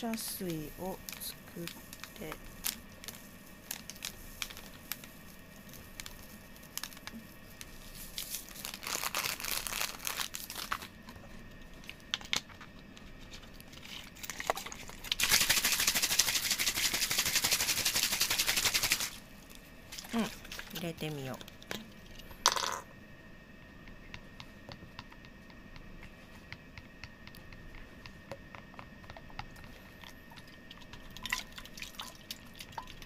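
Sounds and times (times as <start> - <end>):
clicks and crinkling: 0.0 - 15.2.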